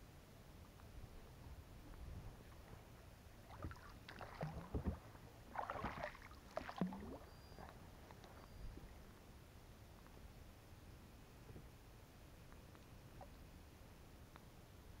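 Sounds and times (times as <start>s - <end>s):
water splashing: 3.4s - 7.7s.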